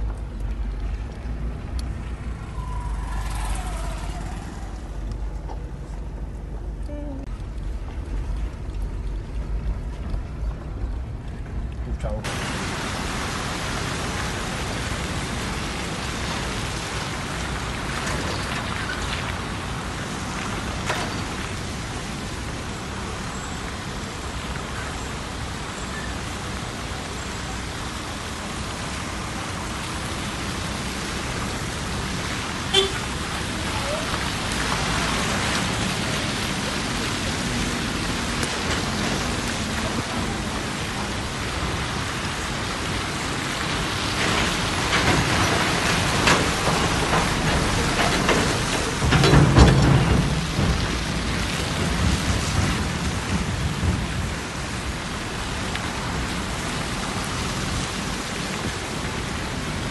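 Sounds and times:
low engine rumble: 0.0 - 12.9
tyres on wet road: 0.0 - 59.9.

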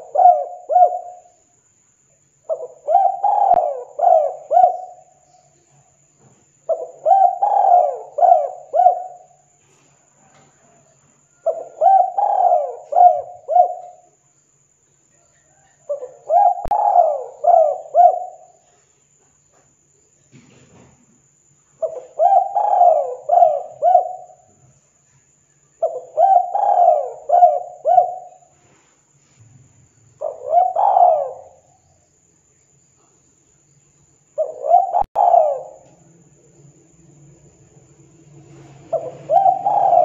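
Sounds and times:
dove cooing: 0.0 - 1.3, 2.5 - 5.2, 6.7 - 9.5, 11.3 - 14.1, 15.4 - 18.8, 21.8 - 24.6, 25.8 - 28.6, 30.2 - 31.7, 34.4 - 36.2, 38.5 - 40.0.

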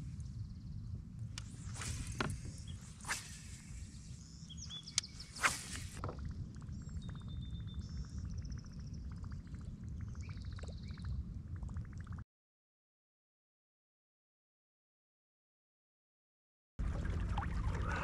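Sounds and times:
wind rumble on microphone: 0.0 - 12.2.

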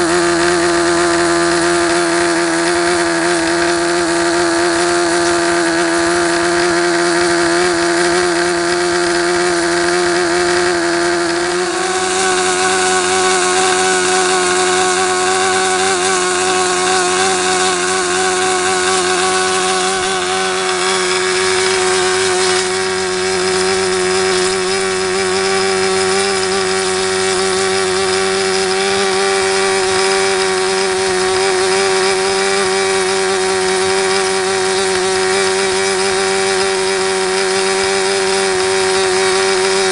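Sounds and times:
model engine running at high speed: 0.0 - 39.9.

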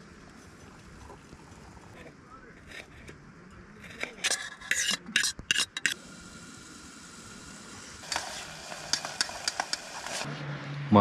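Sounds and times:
spoon scraping metal pot: 3.8 - 6.0
steady hiss: 5.5 - 10.3.

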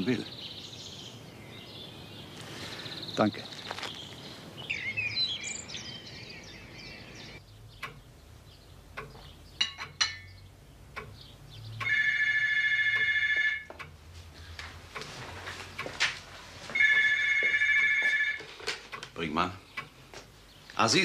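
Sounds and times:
birds chirping: 0.0 - 13.5, 14.3 - 21.0
telephone bell ringing: 11.9 - 13.7, 16.8 - 18.5.

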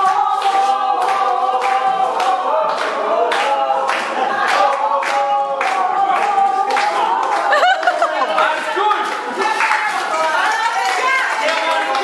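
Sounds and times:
group singing held notes: 0.0 - 8.3.

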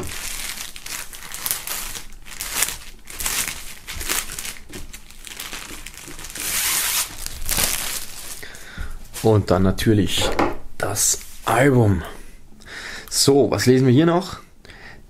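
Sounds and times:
plastic film crinkling: 0.0 - 9.5.

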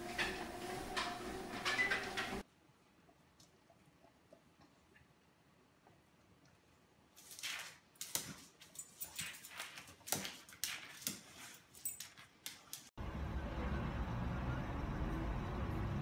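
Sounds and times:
car and traffic noise: 13.0 - 16.0.

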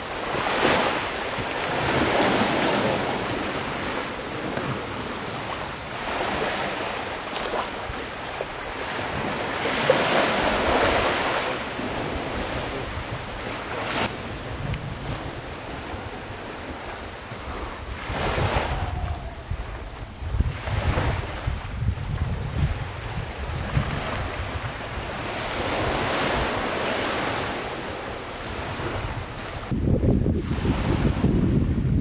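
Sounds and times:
steady high whine: 0.0 - 16.2
wind on microphone: 0.0 - 32.0.

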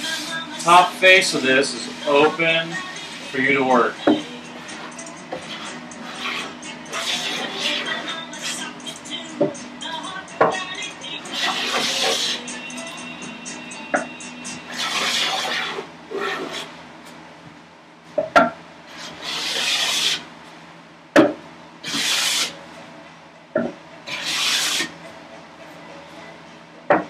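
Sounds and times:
hand plane cutting wood: 4.6 - 8.6, 11.3 - 12.4, 14.7 - 16.7, 19.0 - 20.2, 21.8 - 22.5, 24.1 - 24.9.

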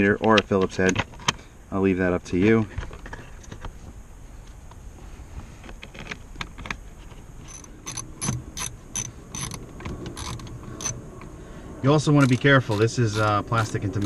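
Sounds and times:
handling noise: 2.3 - 11.3
ratchet pawl clicks: 7.5 - 11.0, 12.2 - 14.0.

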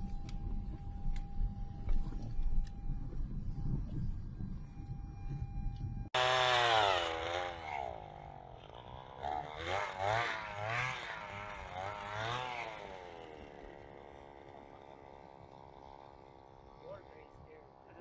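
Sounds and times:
small engine revving: 6.1 - 18.0.

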